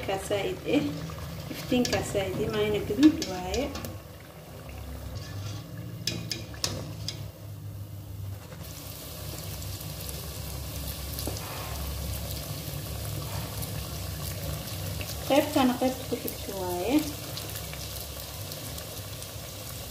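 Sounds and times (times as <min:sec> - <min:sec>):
dough sizzling in hot oil: 0:00.0 - 0:19.9
wire skimmer clinking pot: 0:00.9 - 0:04.0.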